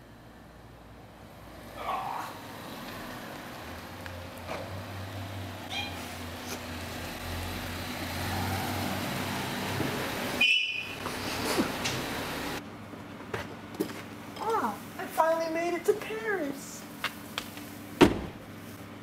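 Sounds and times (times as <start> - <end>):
car engine humming: 0.0 - 12.7
short high-pitched cries: 5.7 - 6.1.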